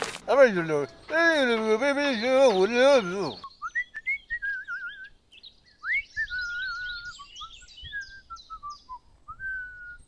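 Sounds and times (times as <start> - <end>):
songbirds chirping and whistling: 0.3 - 10.0.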